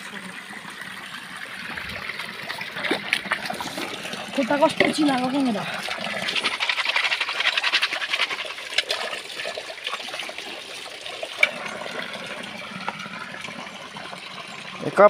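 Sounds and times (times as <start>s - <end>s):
wooden chopsticks rattling: 5.9s - 9.0s.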